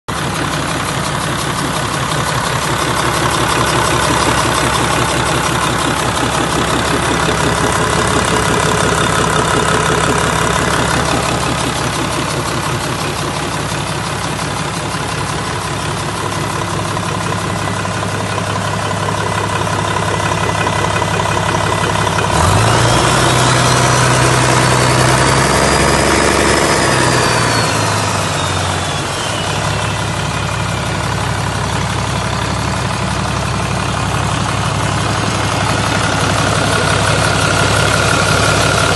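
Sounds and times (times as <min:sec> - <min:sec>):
diesel engine idling and revving: 0:00.1 - 0:38.9
turbo whistle: 0:25.2 - 0:30.7.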